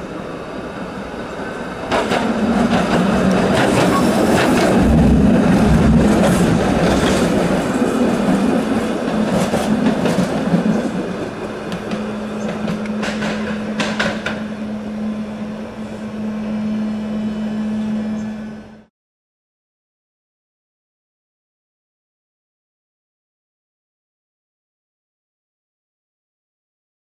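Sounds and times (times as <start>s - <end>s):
streetcar wheels clacking on rails: 1.3s - 14.6s.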